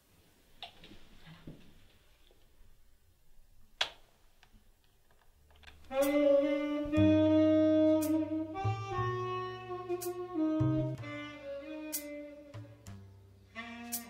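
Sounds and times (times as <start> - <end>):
bass line: 5.9 - 14.0
melody of long held notes: 5.9 - 14.0.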